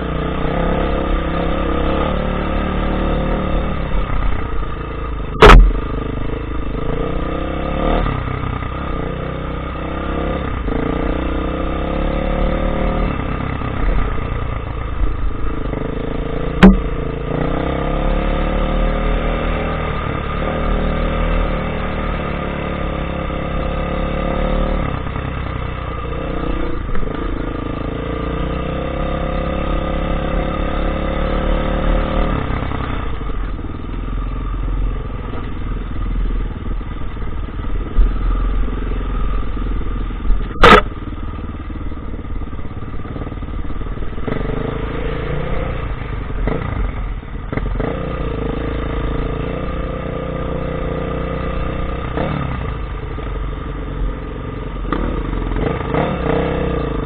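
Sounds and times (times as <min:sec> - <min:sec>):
sharp knock: 0:05.4 - 0:05.9, 0:16.6 - 0:17.0, 0:40.6 - 0:40.9
dirt bike engine revving: 0:54.9 - 0:57.0.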